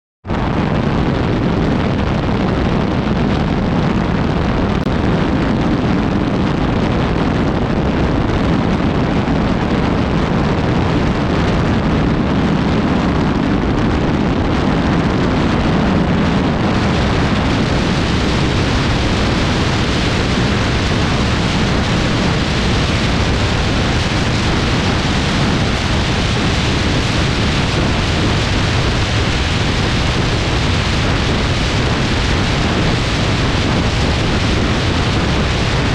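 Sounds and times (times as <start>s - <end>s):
wind rushing over camera: 0.2s - 35.9s
tyre and road noise: 9.8s - 35.9s.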